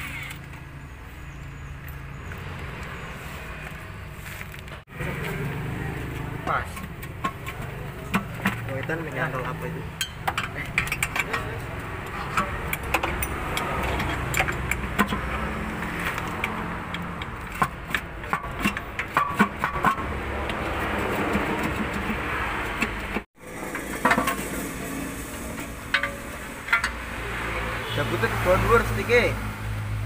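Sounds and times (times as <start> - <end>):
hand tools clinking on steel: 9.9 - 20.0.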